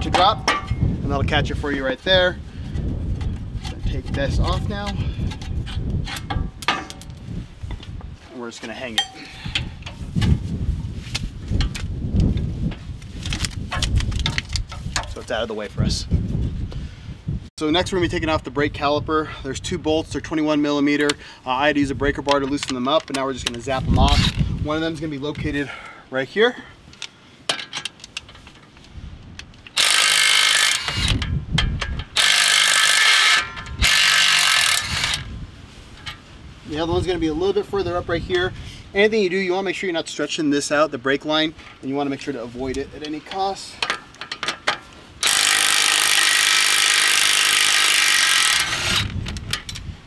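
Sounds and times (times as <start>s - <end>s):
impact wrench hammering: 6.1s - 7.3s
impact wrench running: 29.8s - 31.1s, 32.2s - 35.2s, 45.2s - 49.1s.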